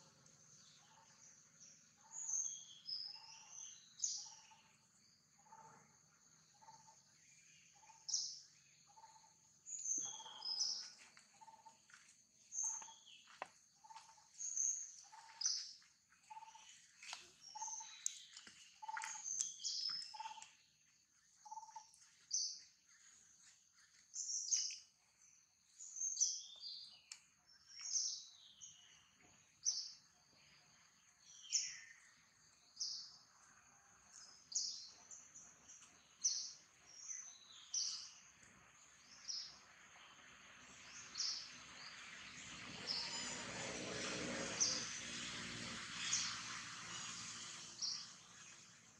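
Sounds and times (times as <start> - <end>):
bird high chirps: 7.7 - 11.7, 42.7 - 43.8.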